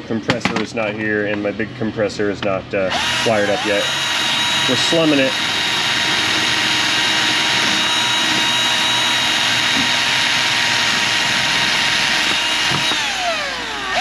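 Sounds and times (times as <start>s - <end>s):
drill grinding steel: 2.9s - 14.0s.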